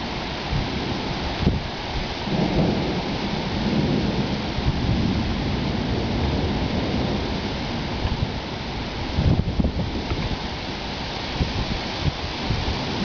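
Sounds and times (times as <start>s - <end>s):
thunder rumbling: 0.0s - 10.5s, 11.4s - 13.0s
rain hissing: 0.0s - 13.0s.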